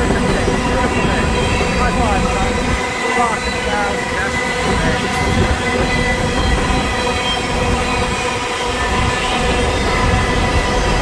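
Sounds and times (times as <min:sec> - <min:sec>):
train wheels rumbling on rail: 0:00.0 - 0:11.0
wheels squealing: 0:00.0 - 0:11.0.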